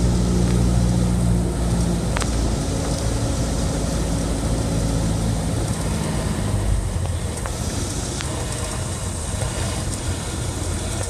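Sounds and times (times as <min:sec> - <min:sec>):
air rushing and propeller noise: 0:00.0 - 0:11.0
airplane engine low hum: 0:00.0 - 0:11.0.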